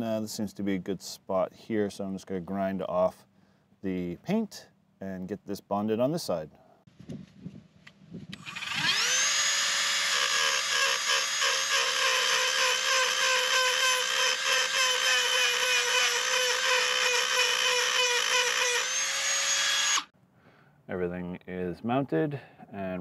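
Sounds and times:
rotary tool grinding metal: 8.4s - 20.1s.

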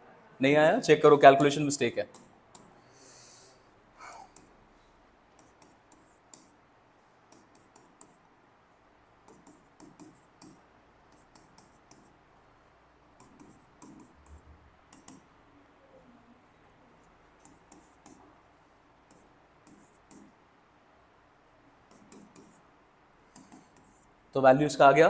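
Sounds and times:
pen scratching on paper: 5.4s - 6.6s, 7.3s - 8.2s, 9.3s - 12.2s, 13.2s - 15.2s, 17.4s - 18.2s, 19.1s - 20.4s, 21.9s - 22.7s, 23.3s - 24.1s.

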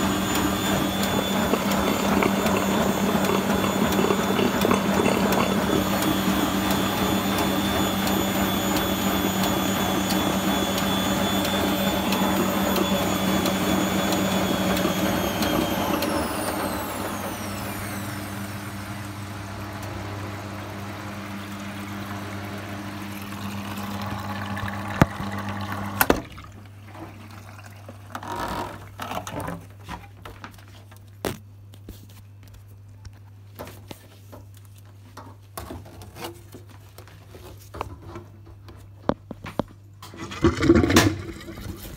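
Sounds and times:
washing machine motor whine: 0.0s - 29.8s.

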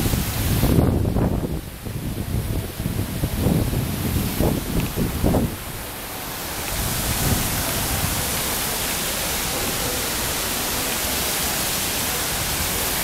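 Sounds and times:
water rushing down waterfall: 0.0s - 13.0s.

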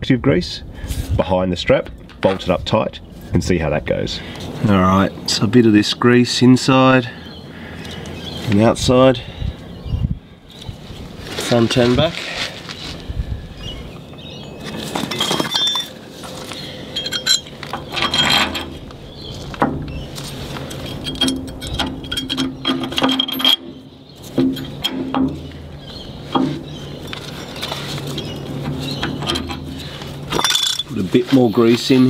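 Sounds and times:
light metal clinks and scrapes: 14.6s - 18.9s, 20.0s - 25.6s, 26.3s - 32.0s.

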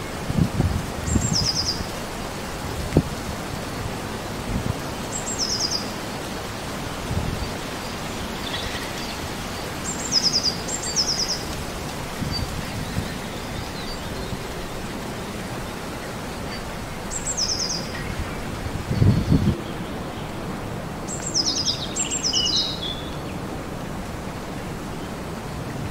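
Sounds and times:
wind gusting: 0.0s - 25.9s
songbird calling: 5.1s - 6.0s, 16.5s - 20.4s, 21.1s - 23.4s.

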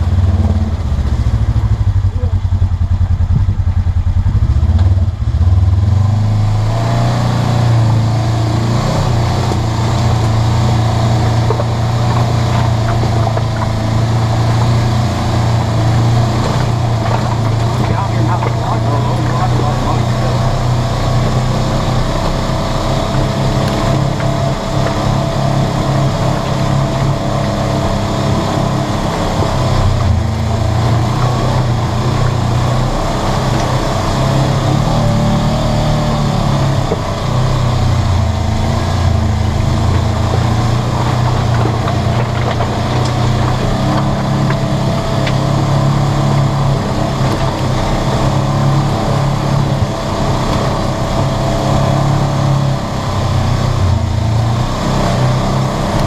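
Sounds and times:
vehicle engine running: 0.0s - 56.0s.

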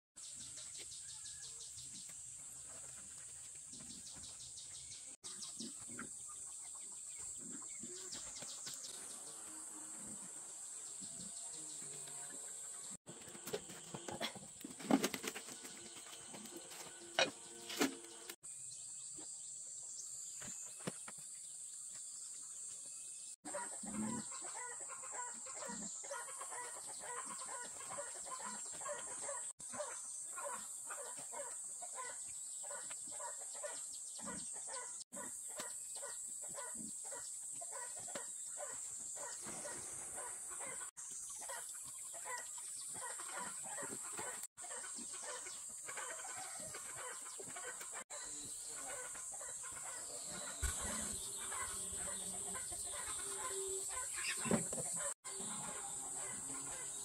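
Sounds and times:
chickens clucking: 23.5s - 56.9s.

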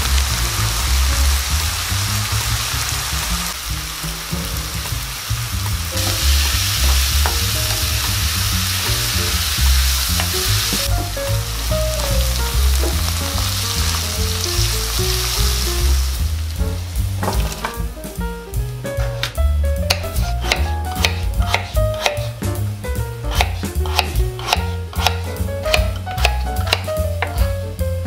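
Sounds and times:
food sizzling in oil: 0.0s - 17.8s
stirring in pan: 23.2s - 27.6s.

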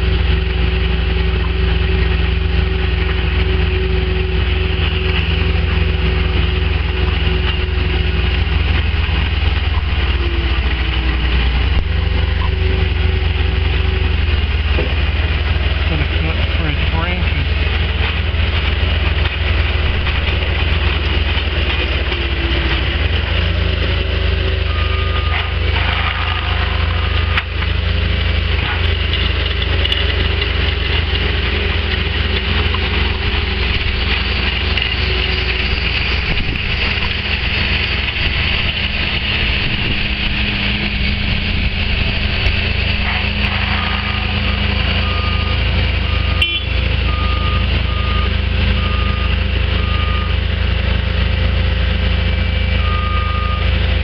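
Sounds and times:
loader engine running hard: 0.0s - 54.0s
milling attachment grinding asphalt: 0.0s - 54.0s
reversing alarm beeping: 23.8s - 27.6s, 43.7s - 50.5s, 52.8s - 53.8s.

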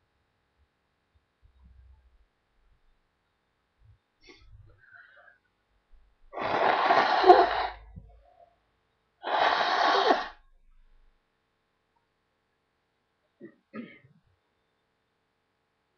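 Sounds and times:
person blowing nose: 6.4s - 7.8s, 9.2s - 10.4s.

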